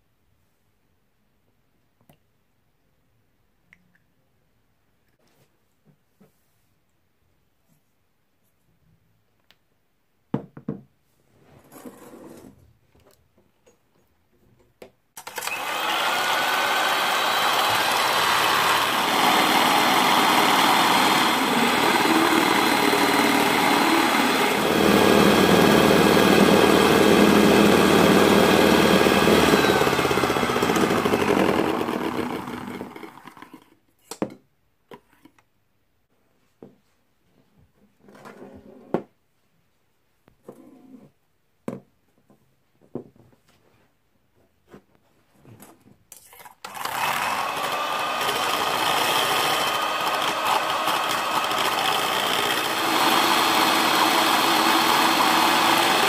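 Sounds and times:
electric hand mixer whine: 0:15.2 - 0:33.6, 0:46.6 - 0:56.0.

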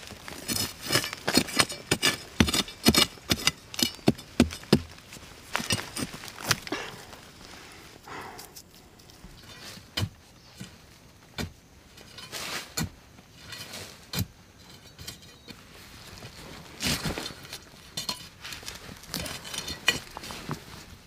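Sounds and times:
scraping and earth crumbling: 0:00.0 - 0:21.0
metal blade striking hard soil: 0:00.5 - 0:04.9.

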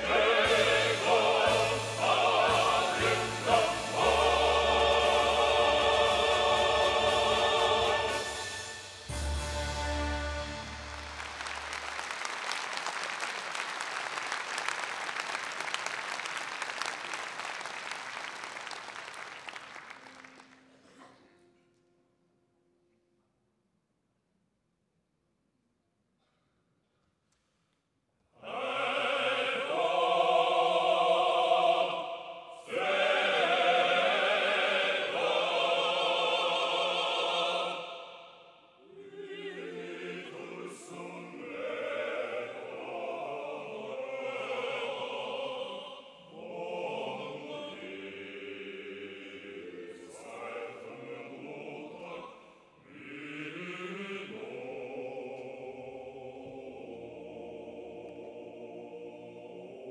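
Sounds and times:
male choir singing: 0:00.0 - 0:08.9, 0:28.4 - 0:59.9.

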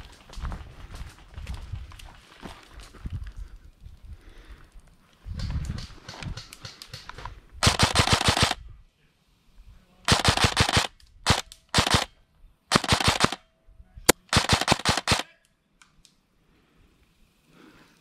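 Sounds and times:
airsoft rifle firing bursts: 0:07.6 - 0:08.6, 0:10.1 - 0:12.1, 0:12.7 - 0:13.4, 0:14.1 - 0:15.3.

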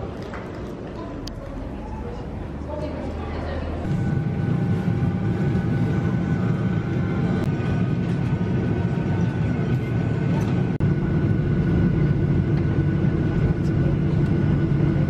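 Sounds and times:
airliner cabin rumble: 0:03.4 - 0:15.0.

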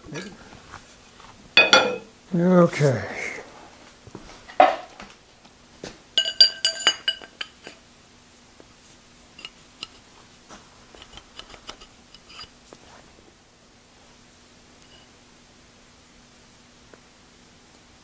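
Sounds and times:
metal parts clinking: 0:06.2 - 0:07.8.

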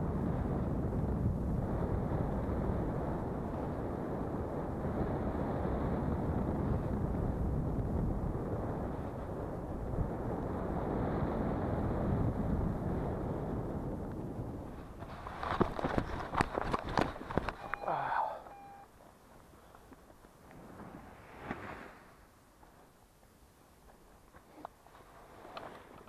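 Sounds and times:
wind rushing over microphone: 0:00.0 - 0:17.8, 0:20.4 - 0:22.6.

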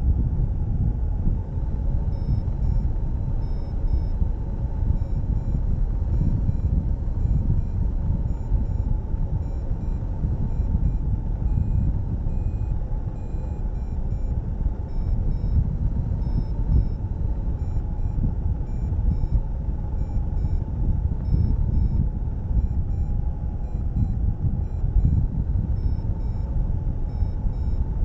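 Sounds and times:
wind buffeting microphone: 0:00.0 - 0:28.0
short electronic beeps: 0:06.2 - 0:15.6, 0:16.2 - 0:17.0, 0:17.6 - 0:19.4, 0:20.0 - 0:20.6, 0:21.2 - 0:22.0, 0:22.6 - 0:25.2, 0:25.8 - 0:26.5, 0:27.1 - 0:27.8.

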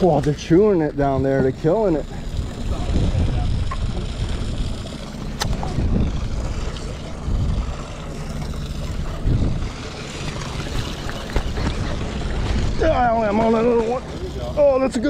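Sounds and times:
low rumbling boat noise: 0:00.0 - 0:15.0
wind noise: 0:02.2 - 0:13.4
sharp click: 0:05.4 - 0:05.7.

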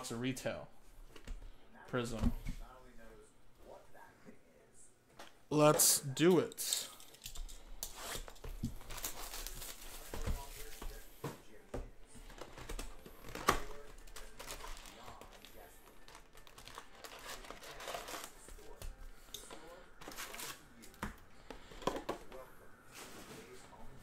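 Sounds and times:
plastic wrap crinkling and tearing: 0:07.9 - 0:10.8, 0:12.3 - 0:18.8, 0:19.7 - 0:20.9.

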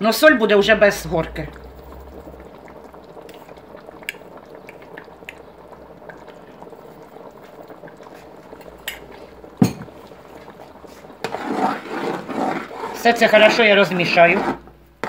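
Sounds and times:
thick sauce bubbling: 0:00.2 - 0:15.0.

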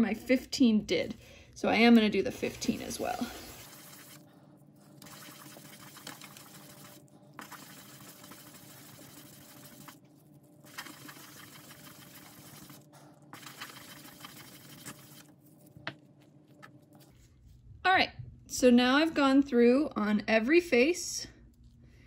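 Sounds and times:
die scratching on wet sandpaper: 0:02.7 - 0:04.3, 0:05.0 - 0:10.0, 0:10.6 - 0:15.4.

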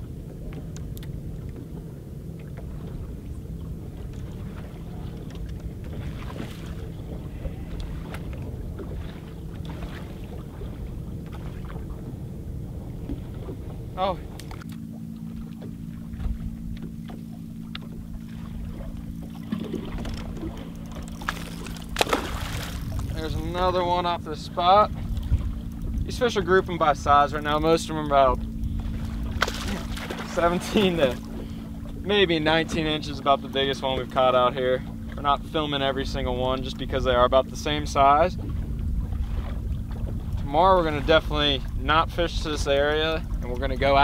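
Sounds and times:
boat motor humming: 0:00.0 - 0:44.0
water lapping: 0:00.0 - 0:44.0
wind: 0:00.0 - 0:44.0
faint clicks: 0:00.5 - 0:01.6
faint ticks: 0:00.5 - 0:01.6.

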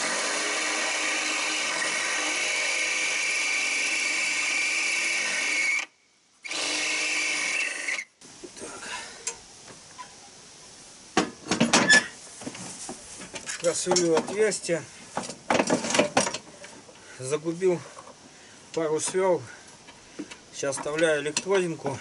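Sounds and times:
cordless drill whining: 0:00.0 - 0:08.1.

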